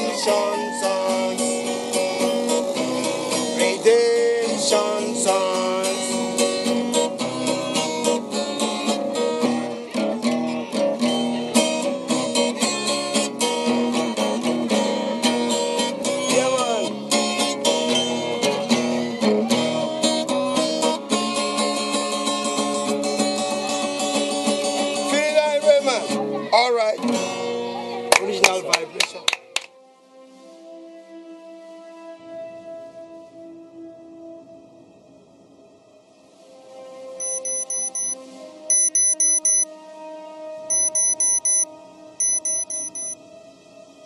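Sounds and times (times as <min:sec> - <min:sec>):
man singing: 0:00.0 - 0:01.8, 0:03.5 - 0:06.3.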